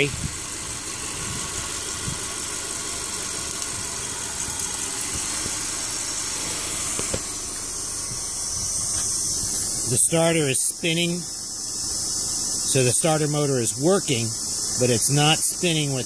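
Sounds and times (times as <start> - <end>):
car engine idling: 0.0 - 16.0.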